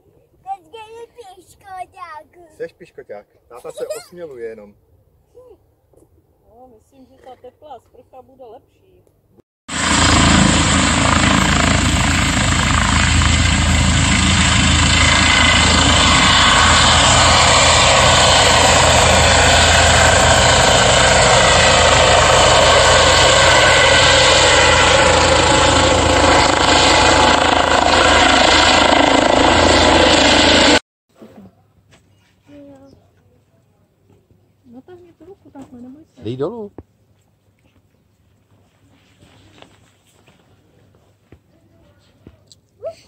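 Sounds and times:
helicopter rotor and turbine: 0:09.7 - 0:30.8.

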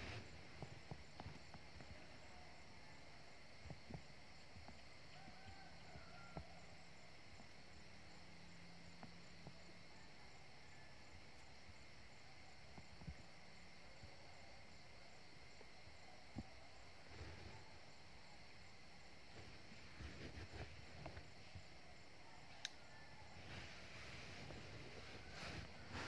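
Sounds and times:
insect chirring: 0:00.0 - 0:26.0
soft clicks: 0:22.6 - 0:22.8.

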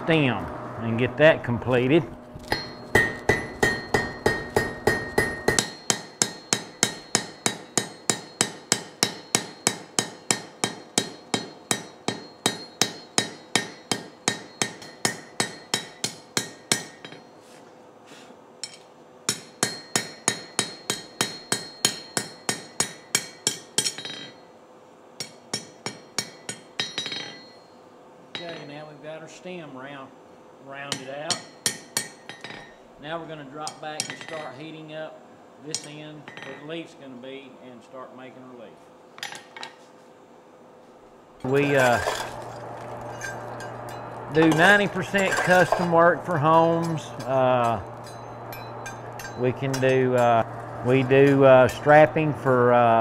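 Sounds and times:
hammer striking steel on anvil: 0:02.4 - 0:17.4, 0:18.6 - 0:24.5, 0:25.2 - 0:27.8, 0:28.4 - 0:29.0, 0:30.9 - 0:32.8, 0:33.6 - 0:34.6, 0:35.7 - 0:36.7, 0:41.4 - 0:52.8.

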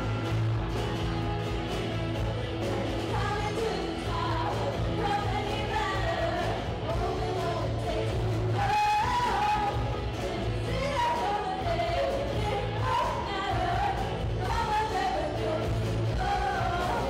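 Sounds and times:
live rock band playing: 0:00.0 - 0:17.0
woman singing lead vocals: 0:03.0 - 0:17.0.

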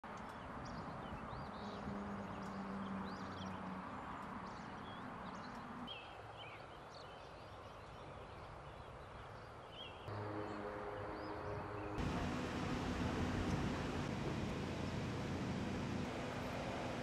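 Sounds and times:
birds chirping: 0:00.2 - 0:17.0
outdoor background hiss: 0:05.2 - 0:17.0
low hum: 0:10.1 - 0:17.0.

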